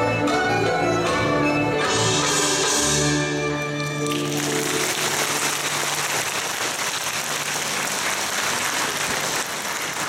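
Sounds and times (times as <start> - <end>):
audience applauding: 3.8 - 10.0.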